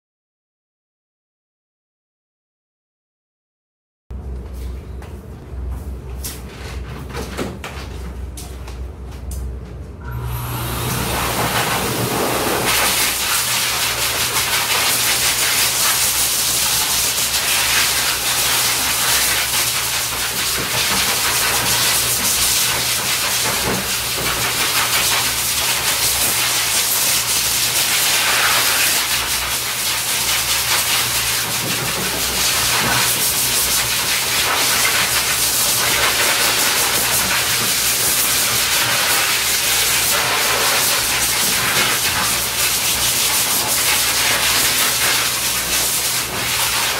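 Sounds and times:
blow dryer air hissing: 10.0s - 46.9s.

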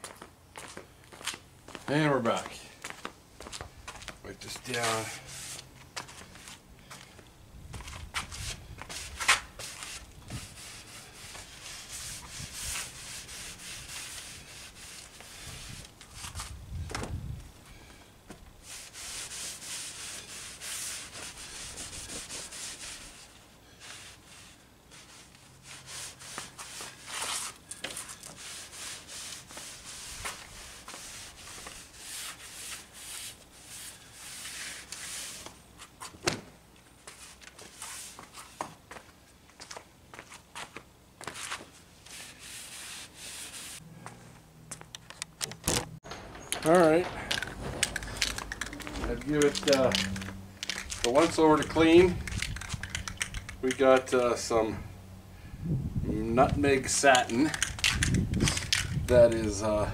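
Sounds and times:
rag rubbing on wooden slats: 8.4s - 16.5s, 18.6s - 35.6s, 41.3s - 43.8s, 46.6s - 53.9s.

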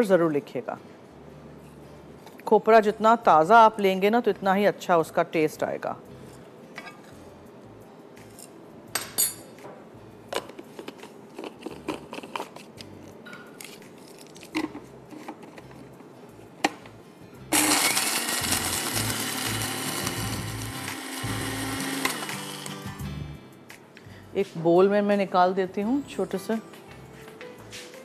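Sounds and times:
electric spice grinder running: 17.5s - 23.0s.

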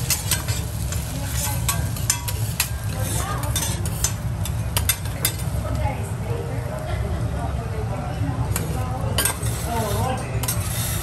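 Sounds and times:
metal spatulas scraping and tapping: 0.0s - 5.6s, 8.5s - 11.0s
oil sizzling on griddle: 0.0s - 5.8s, 8.5s - 11.0s.

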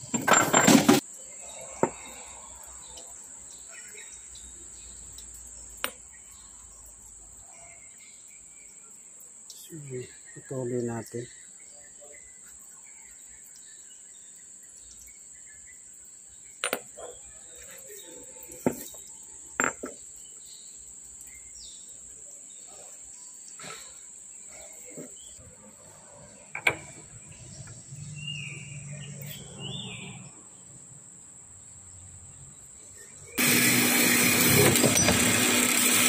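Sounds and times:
metal parts clinking: 0.0s - 1.0s.

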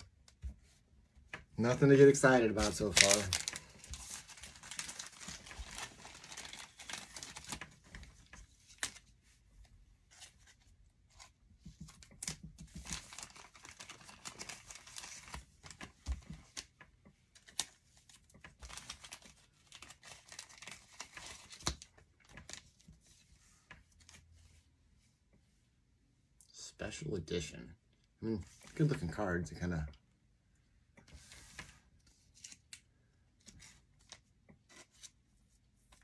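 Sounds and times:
cards being handled: 1.2s - 9.2s, 10.1s - 24.2s, 31.0s - 36.0s
foil wrapper tearing and crinkling: 2.6s - 7.7s, 12.2s - 15.5s, 18.6s - 21.8s.

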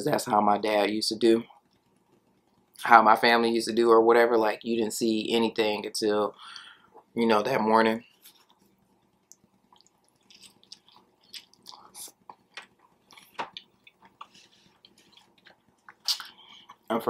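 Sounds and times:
chewing sandwich: 8.3s - 16.9s.

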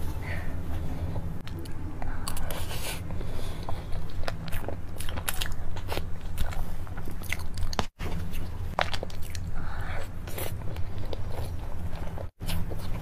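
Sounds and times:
low steady hum: 0.0s - 13.0s
chewing and mouth clicks: 3.6s - 13.0s.

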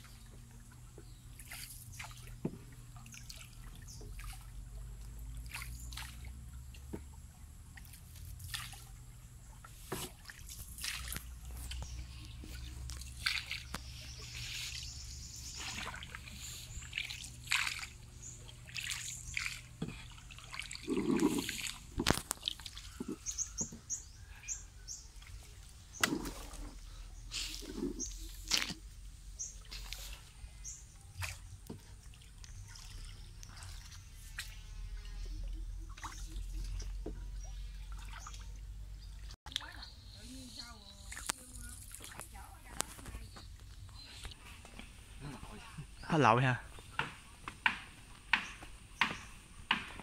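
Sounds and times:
paddle stroking through water: 0.0s - 24.0s, 25.3s - 38.5s
water dripping off paddle: 1.4s - 8.9s, 9.6s - 24.0s, 25.2s - 26.8s.

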